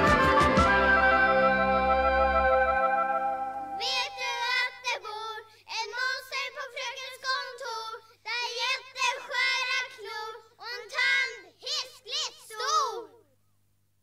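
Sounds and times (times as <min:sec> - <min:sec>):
child singing: 0:03.8 - 0:13.3.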